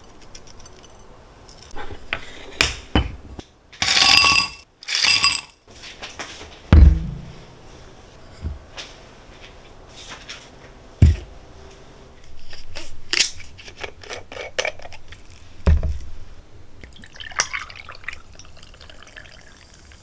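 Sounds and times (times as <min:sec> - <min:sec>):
dull thumps: 0:06.7 - 0:07.4.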